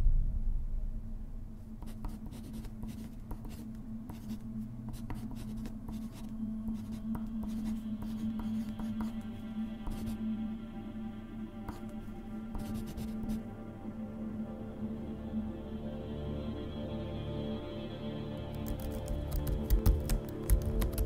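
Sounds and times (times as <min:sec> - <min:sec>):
low steady hum: 0:00.0 - 0:21.0
soft sustained musical tones: 0:00.0 - 0:21.0
pen scratching on paper: 0:01.8 - 0:10.2, 0:12.5 - 0:13.4.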